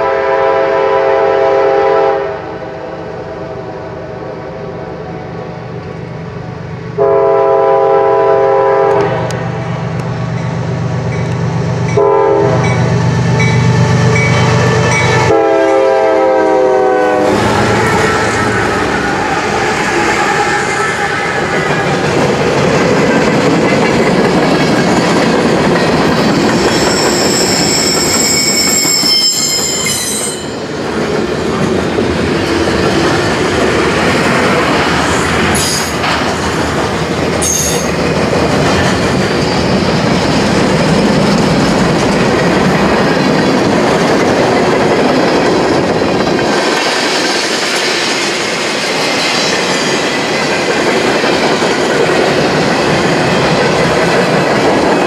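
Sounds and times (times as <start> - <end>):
freight train wheels rolling: 8.9 - 55.0
high-pitched wheel squeal: 26.3 - 30.7, 37.4 - 37.9.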